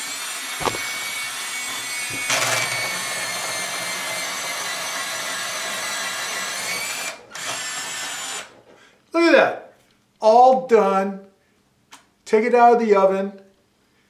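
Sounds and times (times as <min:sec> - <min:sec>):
pencil sharpener motor whine: 0:00.0 - 0:08.5.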